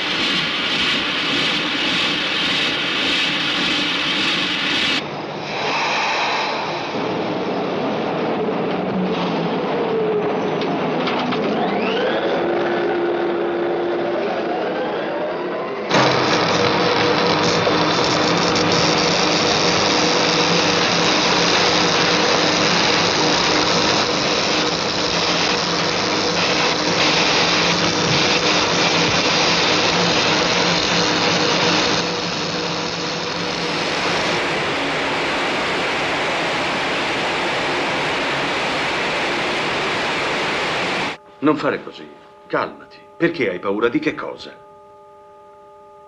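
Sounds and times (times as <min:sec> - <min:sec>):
loud rushing hiss: 0:00.0 - 0:08.5, 0:15.9 - 0:41.2
factory mechanical clatter: 0:00.0 - 0:39.7.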